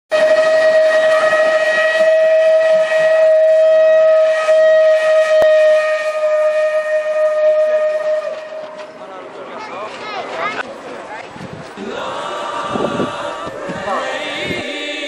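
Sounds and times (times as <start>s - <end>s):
steam locomotive whistle blast: 0.1s - 9.0s.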